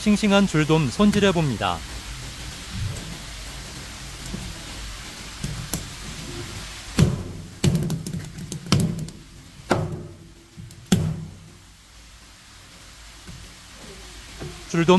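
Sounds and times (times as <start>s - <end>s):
running water rush: 0.0s - 14.9s
heavy thunks on cutting board: 7.0s - 10.3s.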